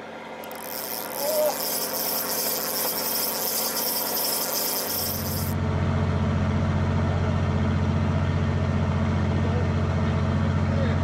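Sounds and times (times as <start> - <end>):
boat engine running: 0.4 - 5.6.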